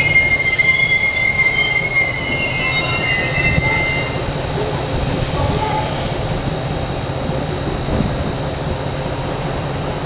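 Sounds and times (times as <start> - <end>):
railcar brakes squealing: 0.0 - 6.2.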